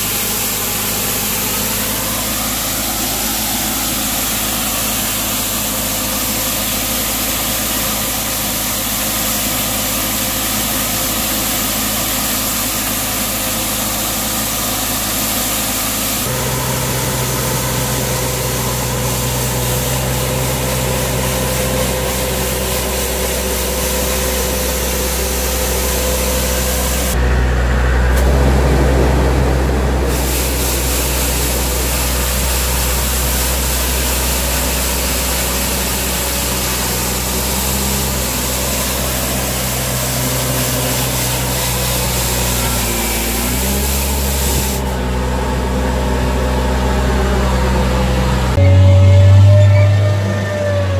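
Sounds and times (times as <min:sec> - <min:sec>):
rotating brushes sweeping ground: 0:00.0 - 0:27.3, 0:28.1 - 0:45.0
street sweeper engine humming: 0:00.0 - 0:50.9.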